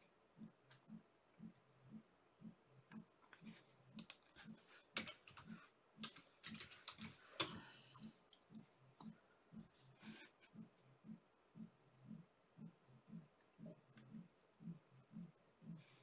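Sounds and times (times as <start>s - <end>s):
soft low pulse: 0.0s - 4.6s, 8.0s - 16.0s
faint clicking and tapping: 0.0s - 16.0s.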